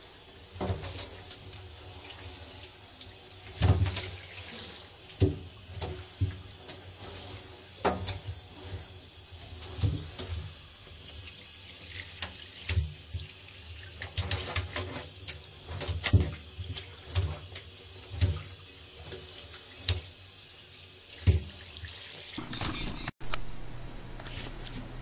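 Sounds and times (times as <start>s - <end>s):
bath water splashing: 0.4s - 20.2s.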